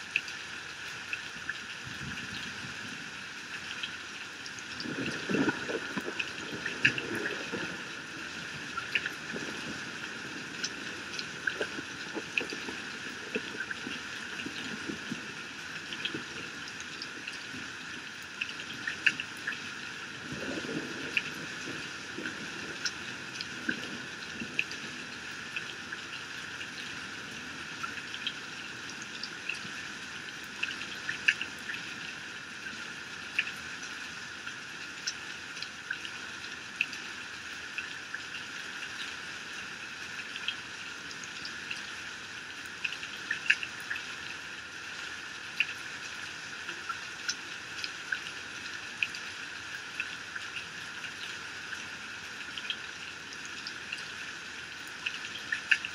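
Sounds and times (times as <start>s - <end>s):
raindrops splatting: 1.1s - 33.9s
heavy rain falling: 4.4s - 25.7s.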